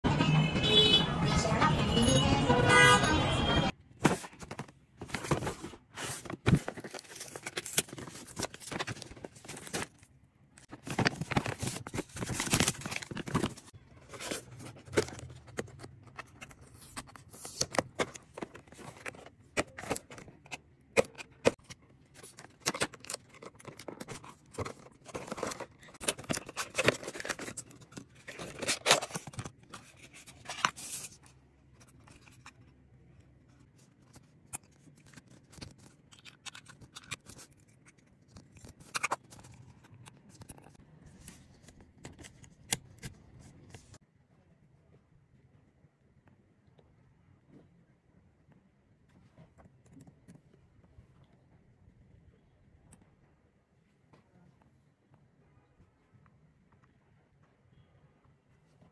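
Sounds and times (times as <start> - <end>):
cardboard and plastic rustling: 3.9 - 32.7.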